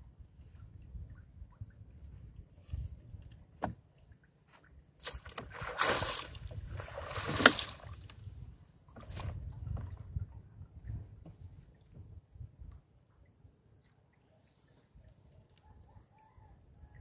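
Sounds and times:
water splashing and sloshing: 0:00.1 - 0:16.0.

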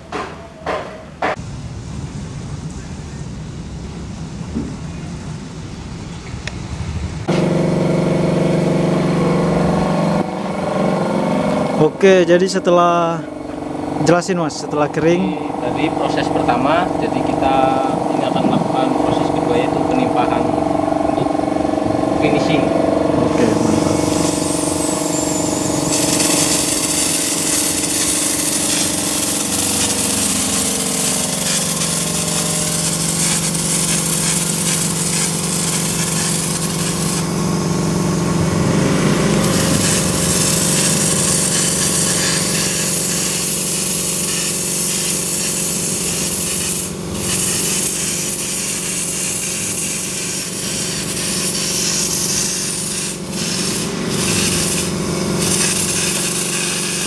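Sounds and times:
air compressor humming: 0:07.2 - 0:57.0
spray gun hissing: 0:23.5 - 0:38.4, 0:39.0 - 0:57.0.

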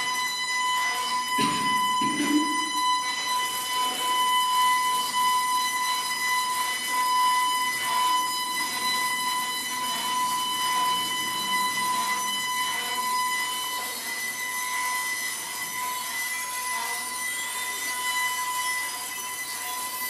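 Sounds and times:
steady high electronic tone: 0:00.0 - 0:20.0.

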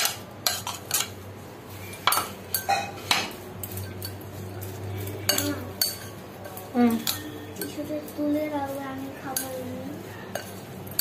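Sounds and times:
spoon scraping glass bowl: 0:03.6 - 0:08.2.

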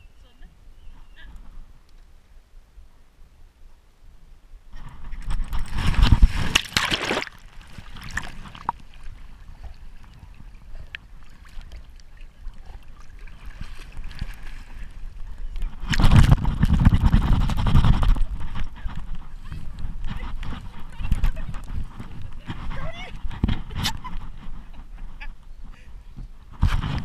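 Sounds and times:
rubbing and knocking on camera: 0:04.8 - 0:08.8, 0:15.7 - 0:25.3, 0:26.2 - 0:27.0
water sloshing and splashing: 0:05.2 - 0:19.0.

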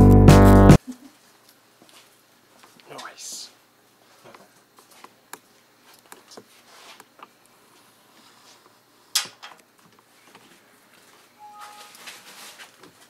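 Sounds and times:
two-tone beep: 0:11.4 - 0:12.0.

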